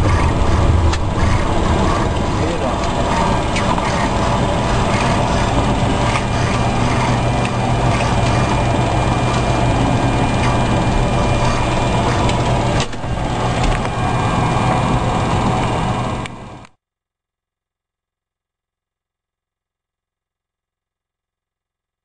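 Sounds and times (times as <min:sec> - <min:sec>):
jet engines idling: 0:00.0 - 0:16.7
low hum: 0:00.0 - 0:16.7
thin steady whine: 0:00.0 - 0:16.7.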